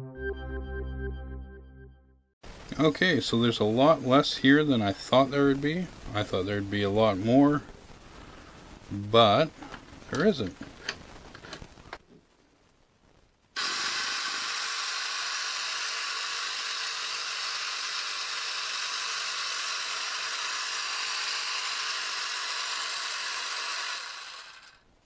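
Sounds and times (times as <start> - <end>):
air compressor running: 13.6 - 24.8.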